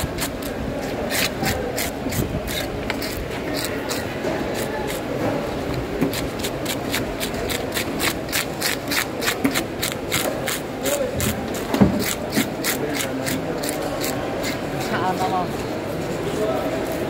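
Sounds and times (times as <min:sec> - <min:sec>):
scaler scraping fish scales: 0:00.0 - 0:05.2
murmur of voices: 0:00.0 - 0:17.0.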